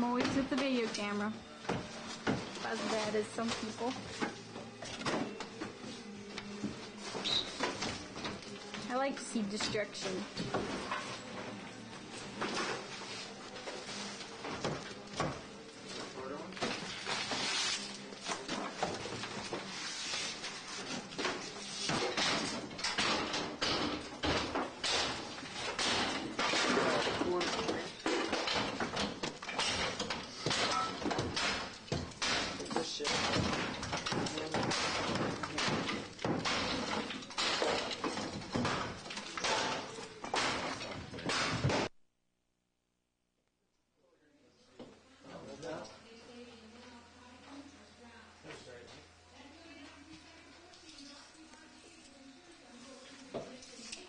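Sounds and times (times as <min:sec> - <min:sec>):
scraping and crashing debris: 0:21.8 - 0:41.9.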